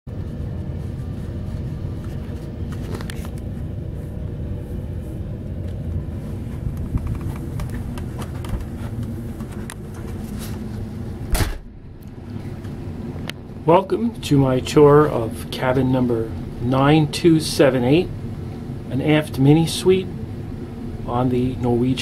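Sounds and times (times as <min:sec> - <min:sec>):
steady low rumble: 0:00.1 - 0:22.0
cabin door opening: 0:06.9 - 0:10.1, 0:11.3 - 0:11.7.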